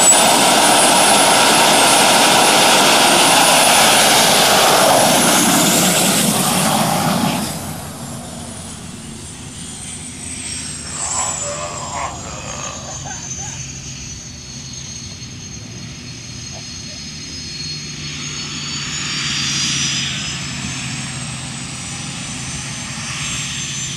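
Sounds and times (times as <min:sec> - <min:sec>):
jet turbine engine roaring: 0:00.0 - 0:23.9.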